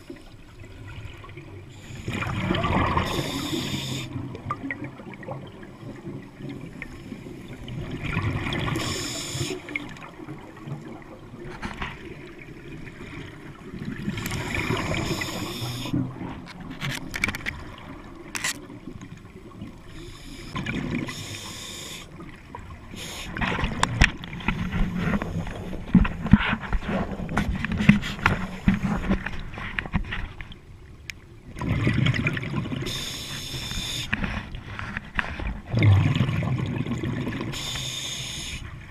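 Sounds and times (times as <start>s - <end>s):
exhaled bubbles underwater: 0.0s - 16.5s, 17.6s - 27.8s, 31.4s - 38.9s.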